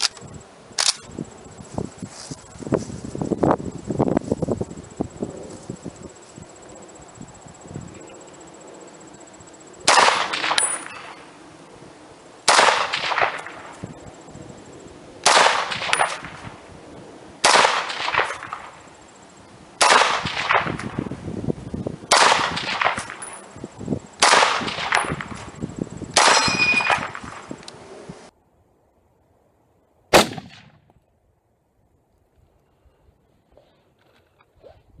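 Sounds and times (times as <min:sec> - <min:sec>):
rifle shots with echo: 0:09.9 - 0:11.2, 0:12.5 - 0:13.8, 0:15.2 - 0:16.6, 0:17.4 - 0:18.8, 0:19.8 - 0:21.0, 0:22.1 - 0:23.4, 0:24.2 - 0:25.4, 0:26.2 - 0:27.5, 0:30.1 - 0:30.9
metallic clip ping: 0:26.3 - 0:26.9.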